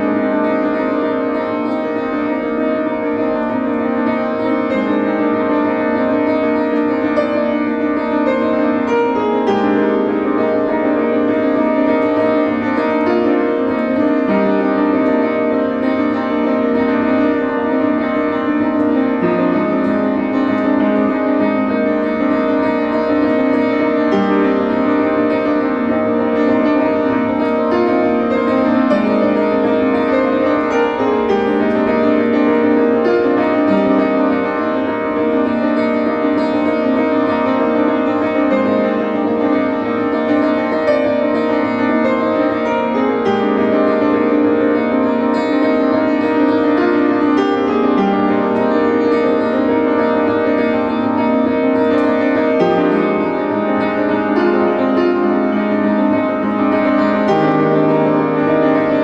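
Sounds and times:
upright piano chords: 0:00.0 - 0:59.0.

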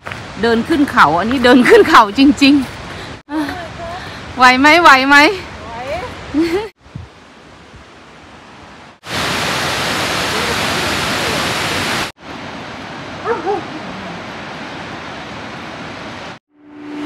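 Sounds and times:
waterfall roaring: 0:07.2 - 0:16.4.

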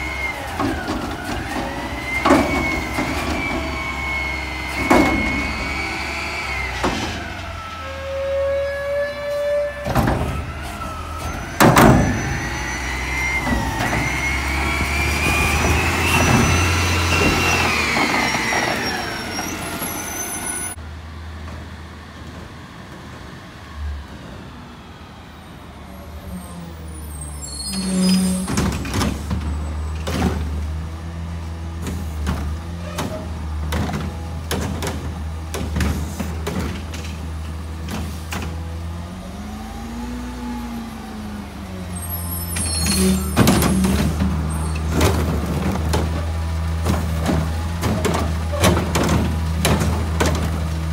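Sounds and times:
hydraulic whine: 0:00.0 - 0:20.8
garbage truck engine revving: 0:00.0 - 0:50.9.

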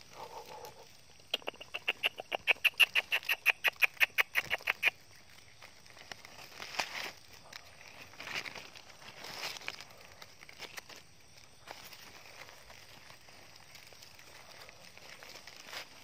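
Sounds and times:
animal high-pitched chirps: 0:01.2 - 0:05.0
dry leaves rustling: 0:04.3 - 0:16.0.

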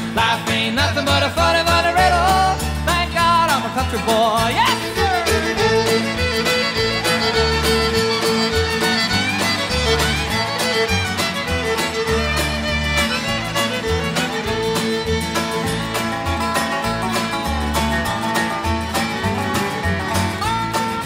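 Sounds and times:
picked rhythm and bass: 0:00.0 - 0:21.0
fiddle: 0:01.1 - 0:21.0.

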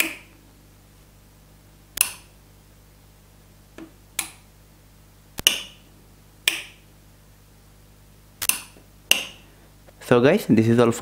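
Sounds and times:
light switches clicking: 0:00.0 - 0:00.3, 0:02.0 - 0:02.3, 0:04.2 - 0:04.4, 0:05.4 - 0:05.8, 0:06.4 - 0:06.8, 0:08.4 - 0:09.4.

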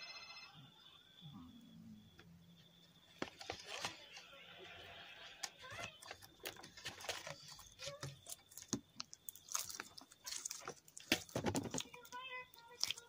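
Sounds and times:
slime squishing and clicking: 0:07.8 - 0:13.0.

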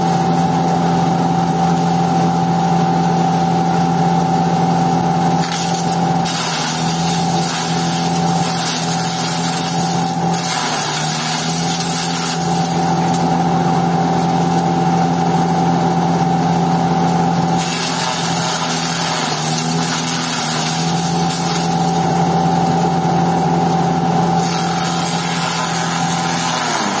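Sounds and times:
chaff cutter motor humming: 0:00.0 - 0:27.0
stalks being shredded: 0:05.4 - 0:13.4, 0:17.5 - 0:27.0.

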